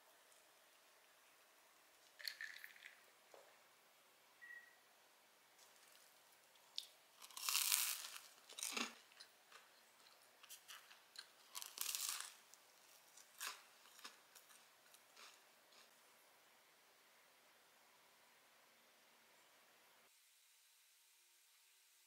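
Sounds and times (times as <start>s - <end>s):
bread crust crackling and crunching: 5.6s - 15.9s.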